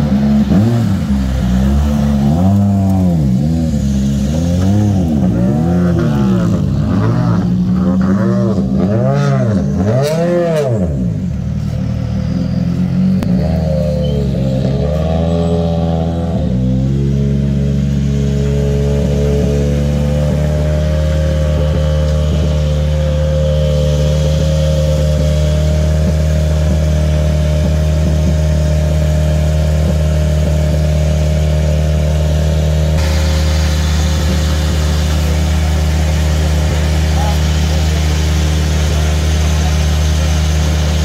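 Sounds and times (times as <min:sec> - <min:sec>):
car engine idling: 0:00.0 - 0:41.0
hiss: 0:33.0 - 0:40.4.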